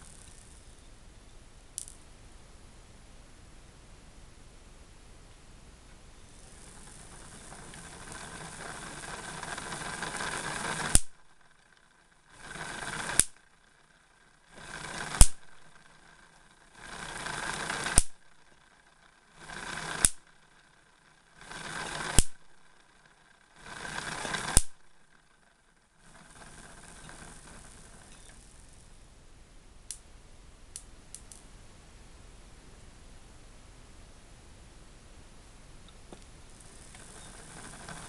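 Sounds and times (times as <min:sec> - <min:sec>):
electrostatic machine hissing: 0:06.2 - 0:11.2, 0:36.5 - 0:38.0
sharp spark cracks: 0:10.7 - 0:11.2, 0:12.9 - 0:13.4, 0:15.0 - 0:15.5, 0:17.8 - 0:18.2, 0:19.9 - 0:20.2, 0:22.1 - 0:22.4, 0:24.4 - 0:24.8.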